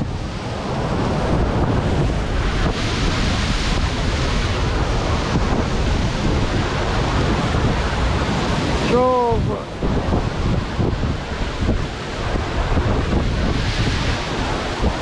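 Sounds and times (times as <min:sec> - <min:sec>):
surf breaking on rocks: 0:00.0 - 0:15.0
wind buffeting microphone: 0:00.0 - 0:15.0.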